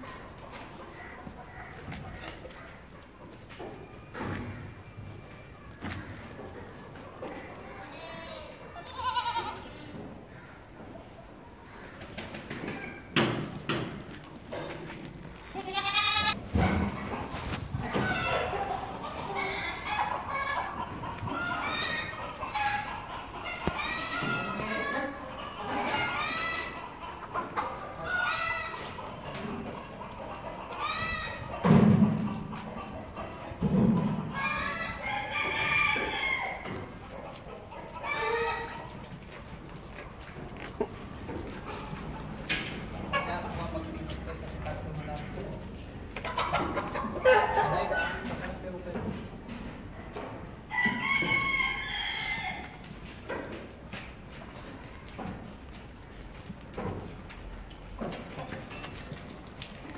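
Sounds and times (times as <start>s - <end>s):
goat kids bleating: 7.5s - 9.9s, 15.4s - 16.4s.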